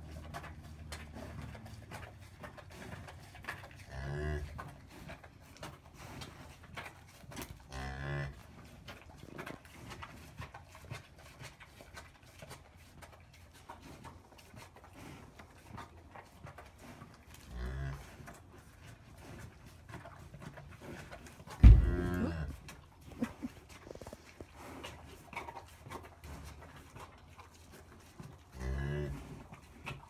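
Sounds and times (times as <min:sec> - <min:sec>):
cow mooing: 0:03.9 - 0:04.5, 0:21.6 - 0:22.5.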